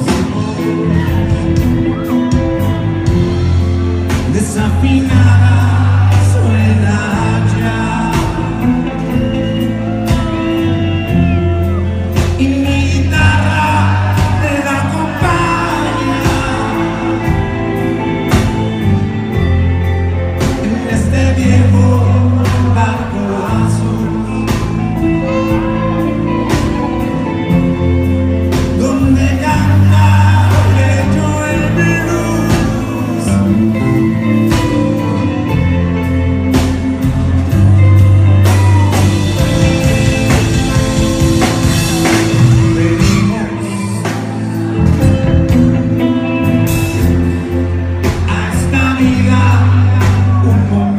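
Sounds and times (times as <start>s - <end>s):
bass guitar: 0.0s - 50.9s
drum kit beat: 0.0s - 50.9s
electric guitars: 0.0s - 50.9s
lead vocals singing: 4.1s - 19.5s, 20.1s - 35.4s, 38.4s - 45.5s, 48.0s - 50.9s.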